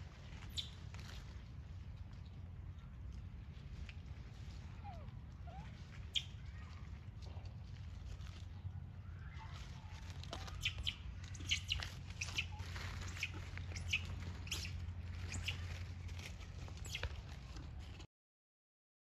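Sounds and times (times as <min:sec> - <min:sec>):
low rumble: 0:00.0 - 0:18.0
high animal chirps: 0:10.4 - 0:15.7.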